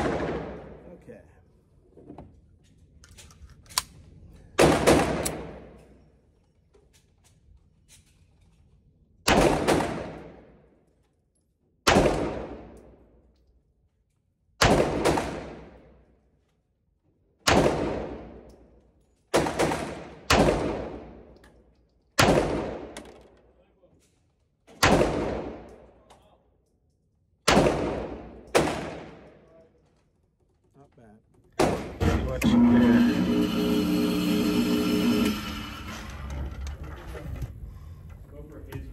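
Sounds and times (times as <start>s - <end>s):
pistol shots ringing indoors: 0.0s - 0.8s, 3.6s - 6.2s, 9.2s - 13.4s, 14.4s - 16.4s, 17.3s - 23.6s, 24.4s - 26.3s, 27.3s - 29.8s, 31.6s - 32.0s.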